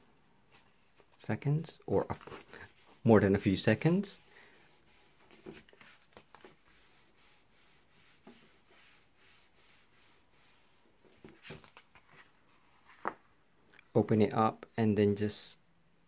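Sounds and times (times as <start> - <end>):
soft paper rustles: 1.9 - 7.2, 10.5 - 13.3
hands rubbing card stock: 2.2 - 13.1.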